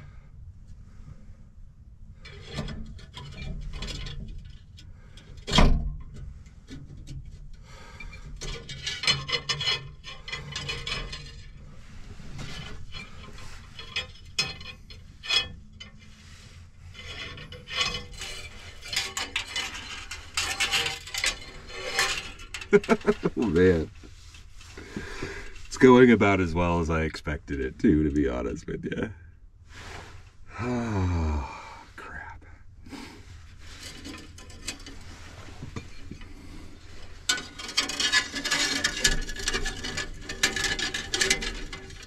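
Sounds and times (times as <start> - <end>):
wire scraping and rubbing: 6.6 - 26.8, 32.9 - 42.0.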